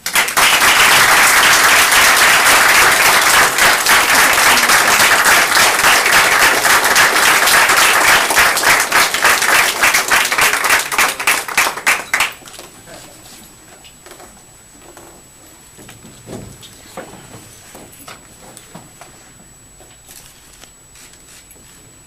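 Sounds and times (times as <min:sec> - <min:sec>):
audience applauding: 0:00.0 - 0:12.4.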